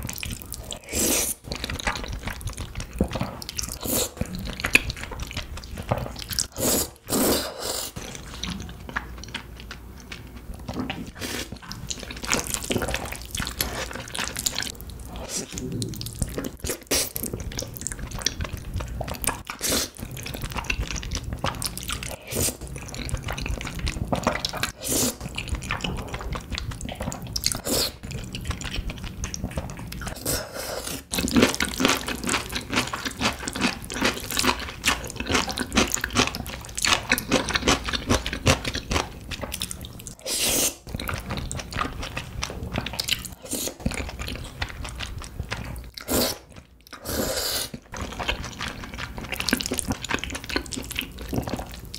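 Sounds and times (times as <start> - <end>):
chewing and mouth smacks: 0.0 - 6.5, 8.0 - 30.2, 31.0 - 40.2, 40.8 - 47.1, 47.7 - 51.9
slurping noodles: 0.6 - 1.4, 6.4 - 8.3, 24.2 - 25.9, 40.2 - 41.2, 45.7 - 51.7.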